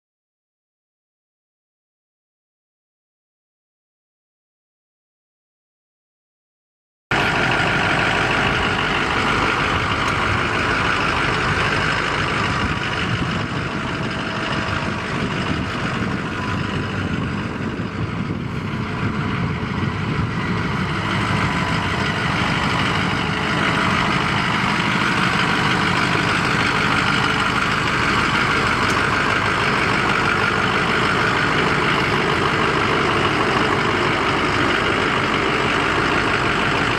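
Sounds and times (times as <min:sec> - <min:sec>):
diesel truck engine idling: 0:07.1 - 0:36.9.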